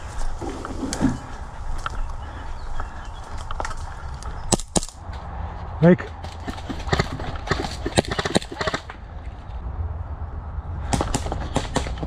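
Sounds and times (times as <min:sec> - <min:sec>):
footsteps on woodland path: 0:00.0 - 0:06.5
rustling of brush and gear: 0:00.0 - 0:09.6.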